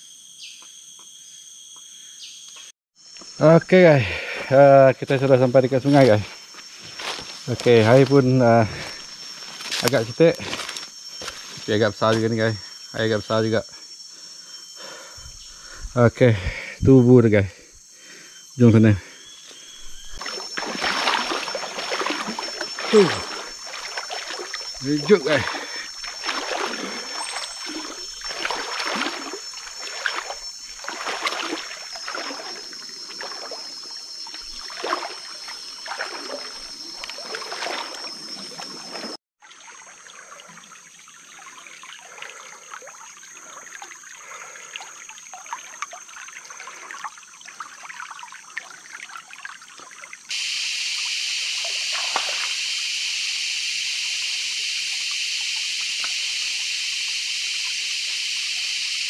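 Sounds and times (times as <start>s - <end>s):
thin high tone: 19.6s - 25.9s
water splashing in river: 20.1s - 50.4s, 51.4s - 52.7s
loud steady hiss: 50.3s - 59.0s.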